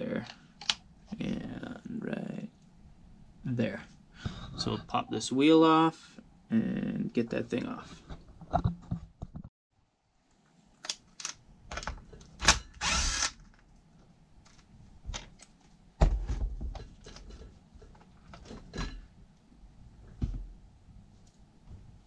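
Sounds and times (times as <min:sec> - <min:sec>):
low thump: 0:20.2 - 0:20.6.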